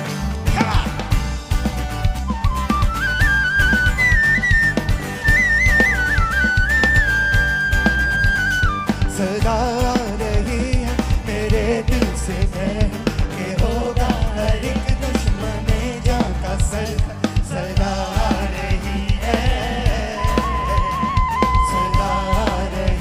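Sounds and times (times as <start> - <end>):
live rock band: 0.0 - 23.0
man singing: 0.5 - 1.3, 9.0 - 23.0.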